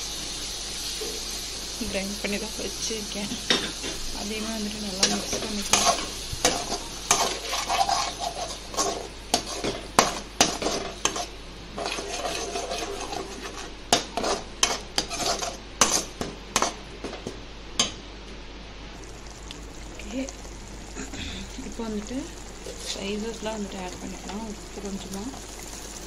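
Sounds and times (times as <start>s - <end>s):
oil sizzling: 0.0s - 18.0s, 18.8s - 26.0s
metal spatula scraping a pan: 5.0s - 16.8s.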